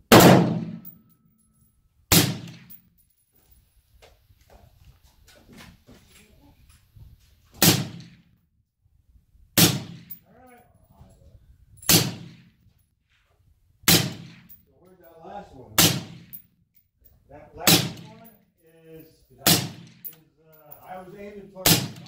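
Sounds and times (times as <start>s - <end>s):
suppressed rifle shots with echo: 0.1s - 0.9s, 2.1s - 2.8s, 9.6s - 10.2s, 13.9s - 14.6s, 21.6s - 22.0s.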